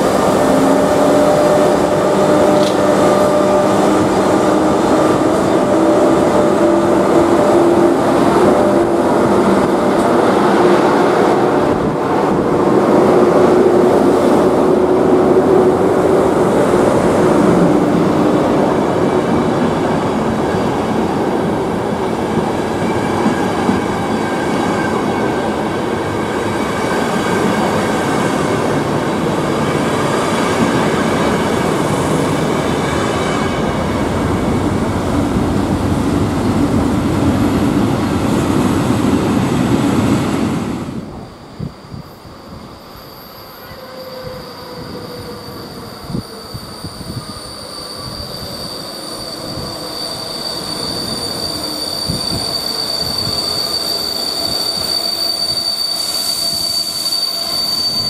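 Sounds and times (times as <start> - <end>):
locomotive hum: 0.0 - 41.8
train wheels on rails: 0.0 - 58.0.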